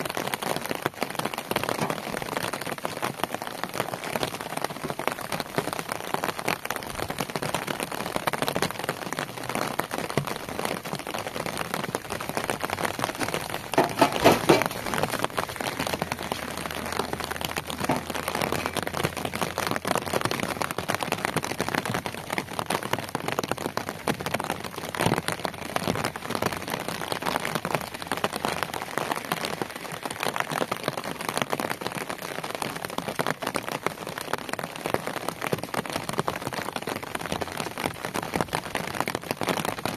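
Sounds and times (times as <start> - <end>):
rain pattering on hard ground: 0.0 - 39.9
concrete blocks knocking on metal: 13.7 - 14.9.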